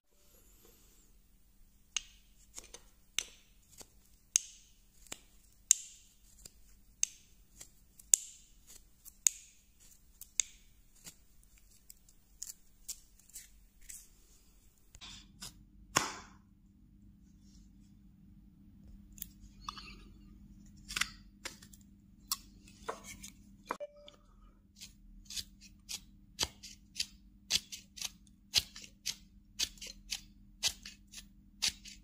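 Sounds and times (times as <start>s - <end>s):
knife carving wood: 1.9s - 14.0s, 24.8s - 32.0s.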